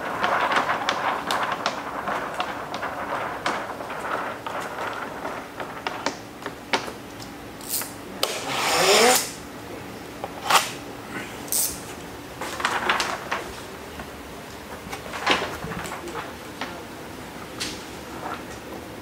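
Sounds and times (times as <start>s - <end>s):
plastic film rustling: 0.0s - 7.2s, 11.7s - 16.9s.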